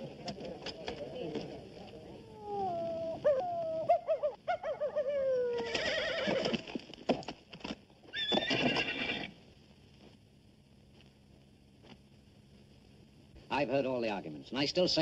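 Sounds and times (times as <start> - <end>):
horse whinnying: 5.5 - 6.8, 8.1 - 9.4.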